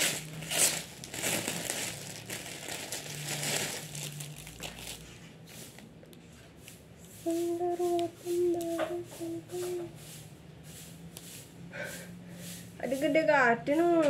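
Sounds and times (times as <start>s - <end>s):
shirt and packaging rustling: 0.0s - 5.9s.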